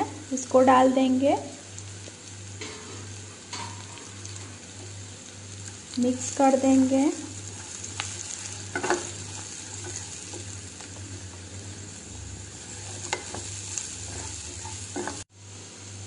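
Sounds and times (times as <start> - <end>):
vegetables sizzling in oil: 0.0 - 16.0
spatula tapping and scraping pan: 7.8 - 11.0, 12.9 - 15.3.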